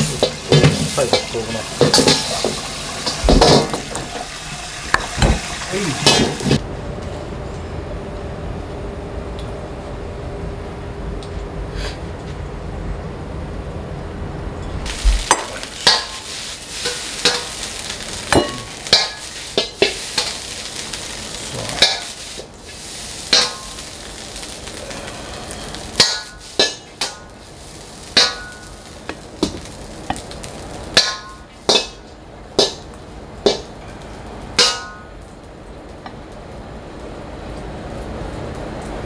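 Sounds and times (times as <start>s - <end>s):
ladle clanging against wok: 0.0s - 3.8s, 15.2s - 17.6s, 18.3s - 20.4s, 21.8s - 22.2s, 23.3s - 23.8s, 26.0s - 27.3s, 28.2s - 28.8s, 31.0s - 32.8s, 34.6s - 35.1s
steady sizzling hiss: 0.0s - 6.7s, 7.4s - 39.0s.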